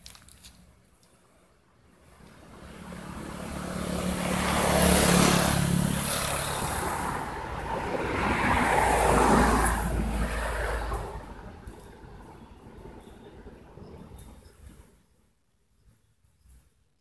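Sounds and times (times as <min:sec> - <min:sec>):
vehicle engine passing: 0:02.4 - 0:11.8.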